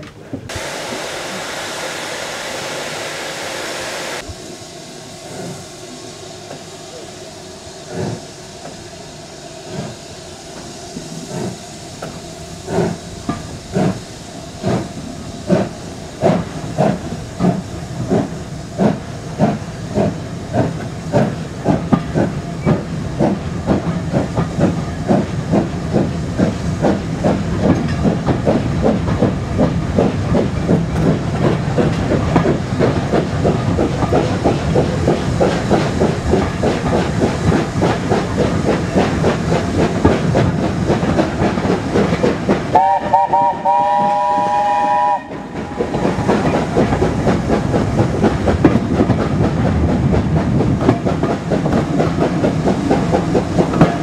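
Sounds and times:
steam hissing: 0.5s - 54.0s
steam locomotive exhaust chuffs: 0.5s - 54.0s.

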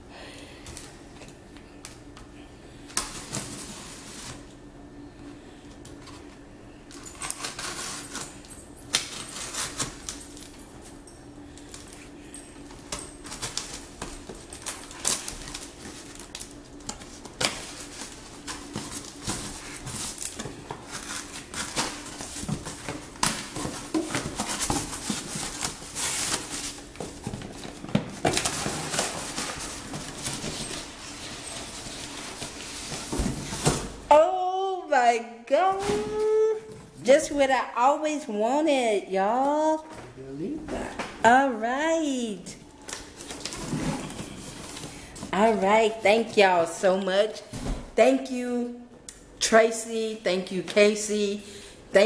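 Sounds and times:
knife slitting packing tape: 7.1s - 10.2s.

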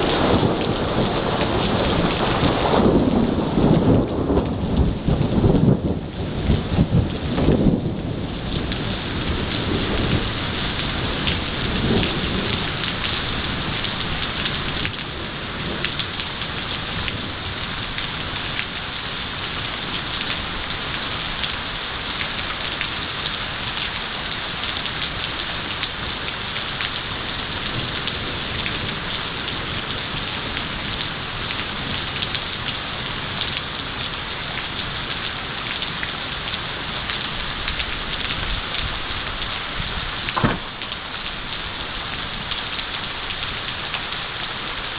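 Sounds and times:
thunder rumble: 0.0s - 18.5s, 37.7s - 42.5s
heavy rain falling: 0.0s - 44.9s.

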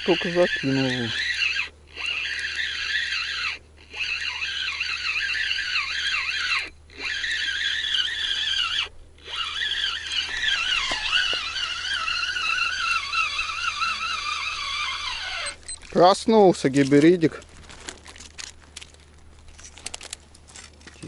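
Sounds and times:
chorus of warbling calls: 0.0s - 15.7s.

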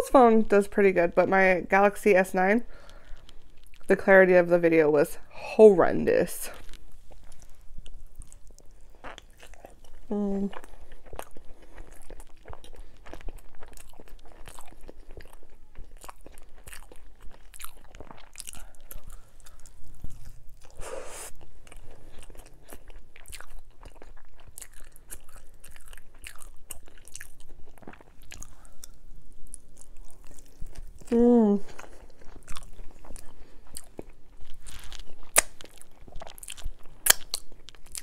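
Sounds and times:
person chewing: 2.7s - 3.9s, 6.6s - 38.0s
loud bite: 35.3s - 35.8s, 37.0s - 38.0s.

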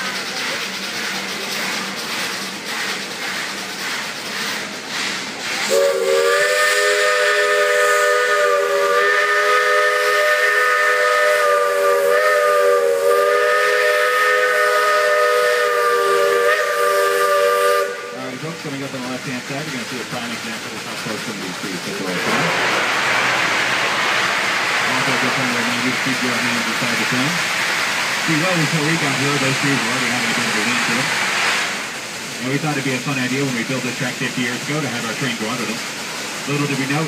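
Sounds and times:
steam hiss: 0.0s - 37.0s
steam locomotive whistle: 5.6s - 18.5s.

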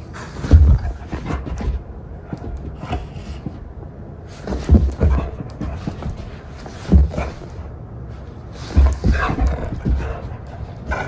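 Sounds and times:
low thumps: 0.4s - 7.7s, 8.6s - 11.0s.

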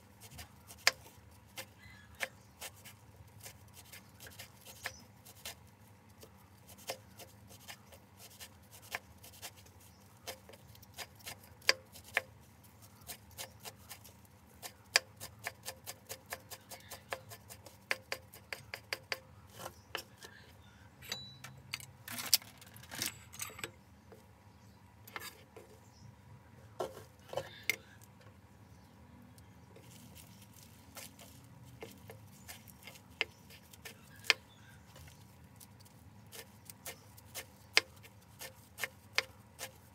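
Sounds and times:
knife chopping on wooden board: 36.3s - 39.8s.

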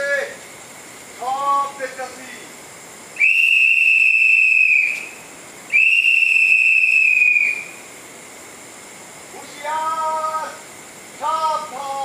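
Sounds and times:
whistle blasts: 3.2s - 7.8s.

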